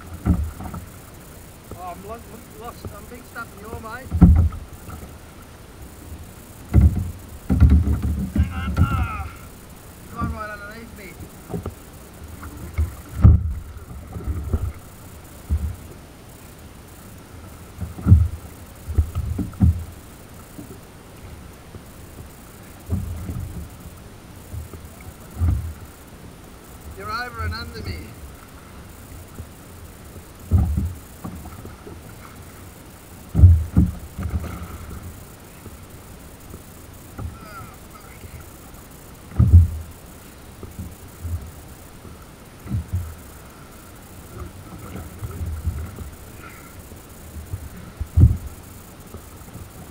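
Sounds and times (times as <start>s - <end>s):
water washing: 0.0s - 49.9s
waves slapping kayak hull: 0.0s - 49.9s
wind: 0.0s - 49.9s
heavy low thuds on kayak: 3.8s - 5.0s, 6.6s - 9.4s, 12.5s - 14.8s, 33.3s - 35.1s, 39.3s - 40.0s, 47.4s - 48.6s.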